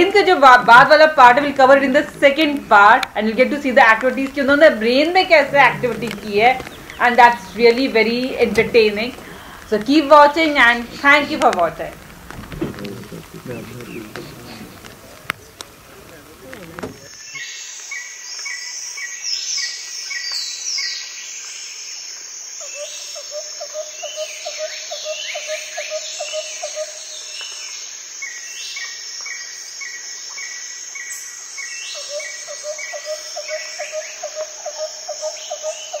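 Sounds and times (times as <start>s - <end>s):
wild birds calling: 0.0s - 18.1s, 22.6s - 28.4s, 29.6s - 36.0s
high insect buzz: 0.0s - 18.8s
quick low bird notes: 1.5s - 17.2s.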